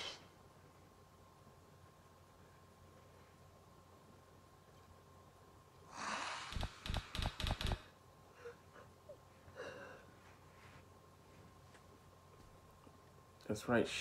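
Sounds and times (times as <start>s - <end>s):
faint breathing: 5.9s - 7.0s, 8.3s - 10.9s.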